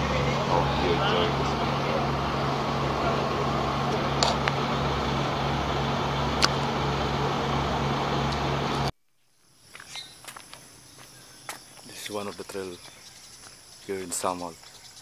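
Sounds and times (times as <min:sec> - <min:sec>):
boat engine running: 0:00.0 - 0:08.9.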